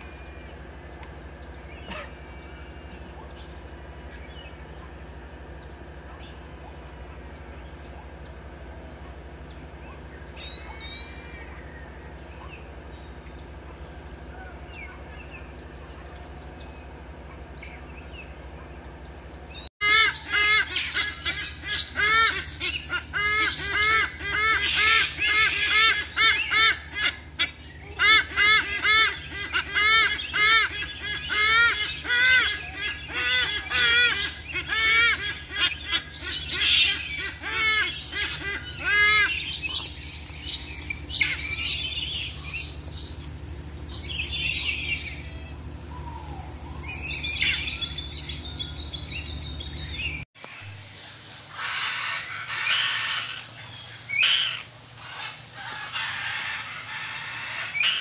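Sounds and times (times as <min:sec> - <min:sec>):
eagle honking calls: 0:00.0 - 0:08.3, 0:19.8 - 0:50.2
faint steady hum: 0:00.0 - 0:58.0
high bird chirp: 0:09.9 - 0:13.4, 0:28.7 - 0:50.3.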